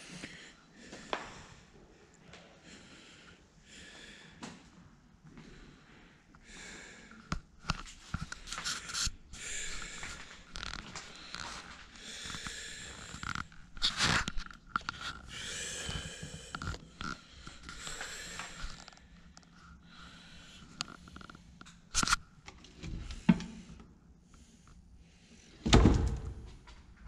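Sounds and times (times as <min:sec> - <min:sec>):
person breathing through nose: 0:08.3 - 0:21.3.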